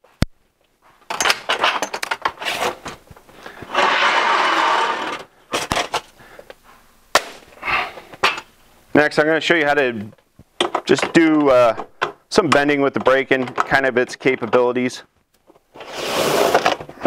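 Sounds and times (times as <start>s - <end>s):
metal sheet scraping: 3.7s - 5.3s.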